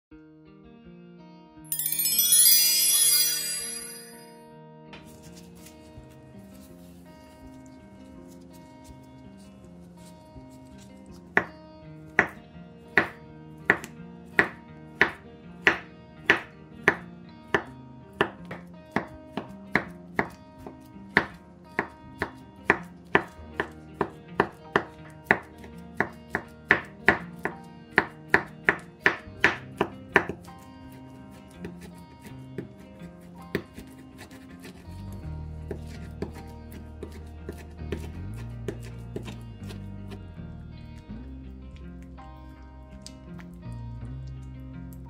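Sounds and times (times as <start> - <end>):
cleaver chopping on wooden board: 13.0 - 17.0, 17.6 - 20.4, 21.2 - 30.4.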